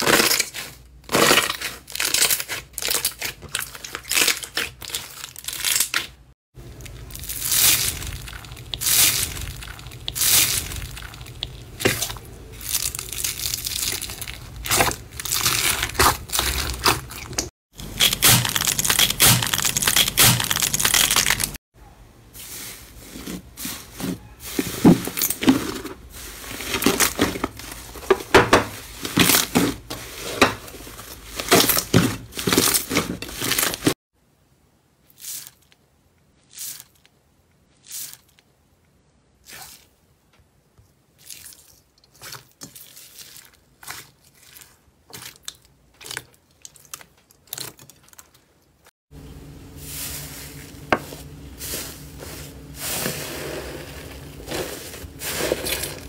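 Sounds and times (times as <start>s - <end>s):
crackling and popping beads: 0.0s - 21.6s
hands kneading slime: 6.8s - 17.5s, 39.4s - 40.0s, 41.0s - 48.4s.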